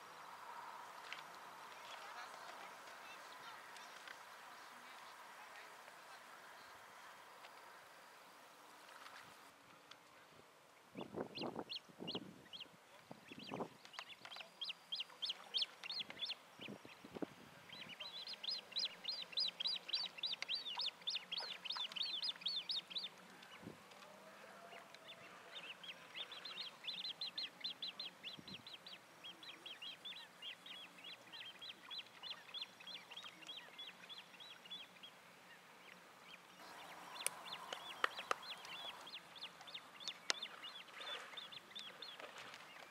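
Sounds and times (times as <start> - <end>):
high-pitched chick peeping calls: 11.3 - 12.7, 13.3 - 17.0, 17.7 - 23.2, 25.0 - 35.1, 36.8 - 42.1.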